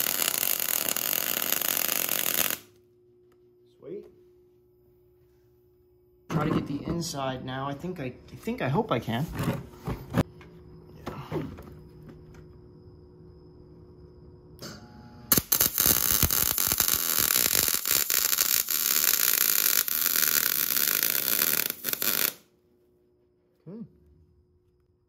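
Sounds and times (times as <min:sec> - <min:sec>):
welding arc crackling: 0:00.0 - 0:02.7, 0:15.3 - 0:22.5.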